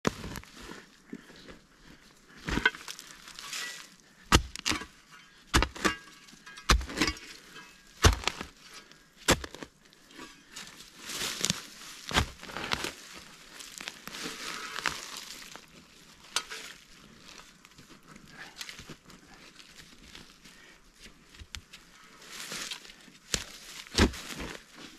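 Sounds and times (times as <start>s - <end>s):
dirt and leaves rustling: 0.0s - 24.9s
shovel chopping into earth: 4.3s - 7.3s, 8.0s - 8.6s, 9.3s - 9.7s, 11.3s - 13.0s, 23.3s - 24.6s.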